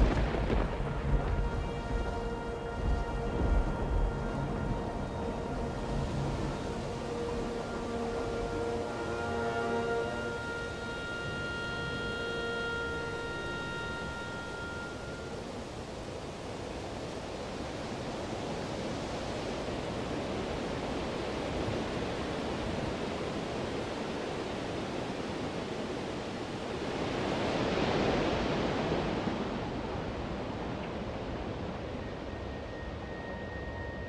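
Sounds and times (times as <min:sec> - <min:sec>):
ocean waves washing: 0:00.0 - 0:34.0.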